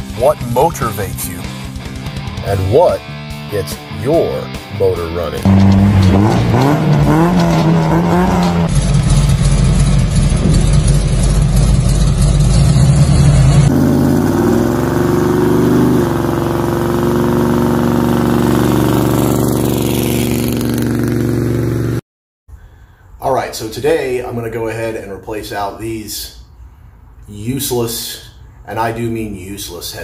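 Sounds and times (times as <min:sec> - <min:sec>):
car engine revving: 0:05.0 - 0:22.0.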